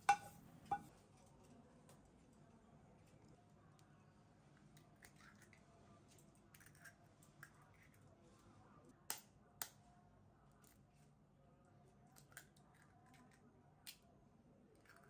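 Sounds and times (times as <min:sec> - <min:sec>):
eggshell tapping on bowl: 0:00.0 - 0:00.9.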